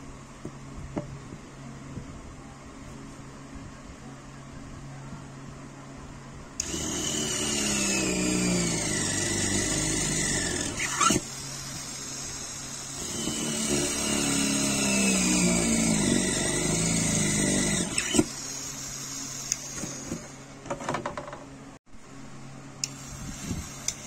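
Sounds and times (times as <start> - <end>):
mini drill whirring into wood: 6.6 - 20.4, 22.8 - 24.0.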